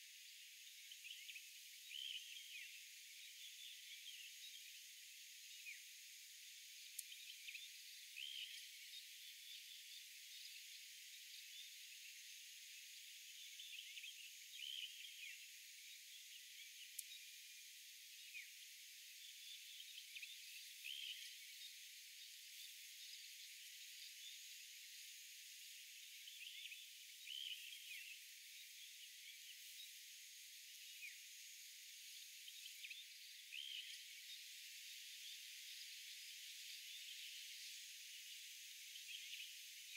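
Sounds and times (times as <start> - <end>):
steady high hiss and drone: 0.0 - 39.9
faint ticks: 6.7 - 7.6, 16.8 - 17.3.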